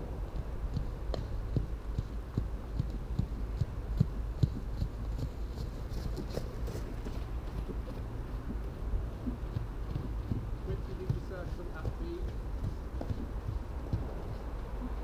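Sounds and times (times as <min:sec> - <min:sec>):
low rumble: 0:00.0 - 0:05.9, 0:06.6 - 0:15.0
horse hoofbeats on sand: 0:00.2 - 0:15.0.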